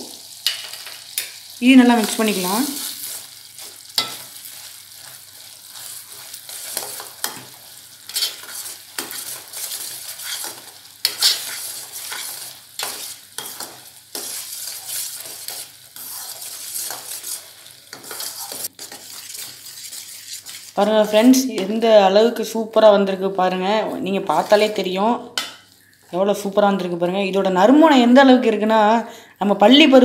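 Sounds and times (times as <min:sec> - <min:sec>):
syrup bubbling and sizzling: 0:00.0 - 0:21.4
metal spoon scraping pan: 0:08.1 - 0:21.8.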